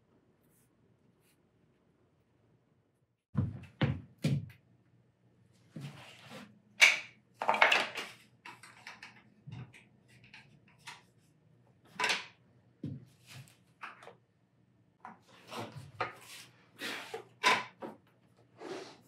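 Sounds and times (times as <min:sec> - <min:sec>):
objects knocking and rattling: 0:06.8 - 0:11.1, 0:11.9 - 0:13.0.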